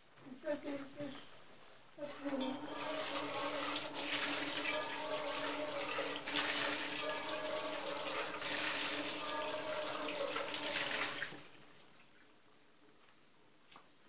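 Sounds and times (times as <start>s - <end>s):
tap water running and splashing: 2.0s - 12.2s.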